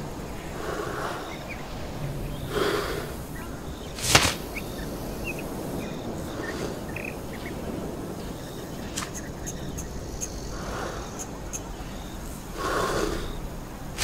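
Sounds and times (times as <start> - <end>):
steady background hiss: 0.0 - 14.0
sharp crack: 4.0 - 4.7.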